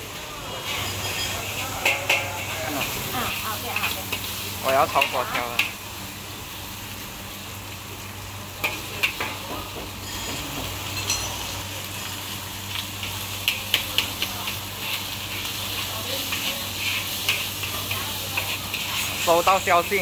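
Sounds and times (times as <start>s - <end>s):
food sizzling in wok: 0.0s - 20.0s
spatula scraping wok: 0.6s - 5.9s, 8.5s - 20.0s
spatula clinking on wok: 0.8s - 2.6s, 8.6s - 11.6s.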